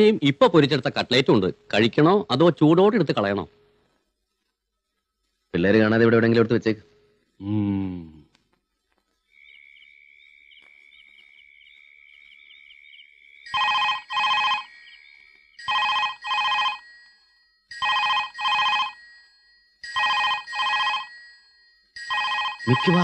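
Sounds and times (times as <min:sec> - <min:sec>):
faint high steady trill: 0:00.0 - 0:23.0
telephone double ring: 0:13.5 - 0:14.9, 0:15.6 - 0:23.0.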